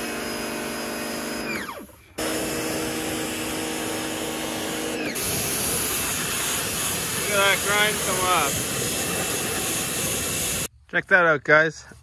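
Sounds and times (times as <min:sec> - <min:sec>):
pressure washer motor running: 0:00.0 - 0:10.7
water spraying: 0:02.2 - 0:10.7.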